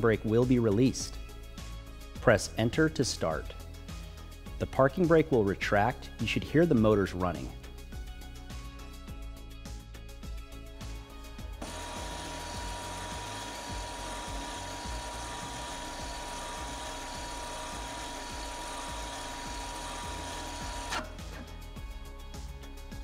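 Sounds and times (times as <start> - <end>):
background music: 0.0 - 23.0
brake motors whining: 11.6 - 22.1.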